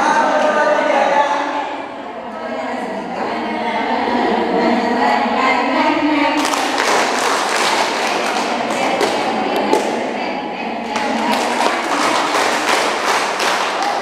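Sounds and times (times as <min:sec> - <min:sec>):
group singing: 0:00.0 - 0:14.0
hand-clapping: 0:06.4 - 0:10.1, 0:10.9 - 0:14.0.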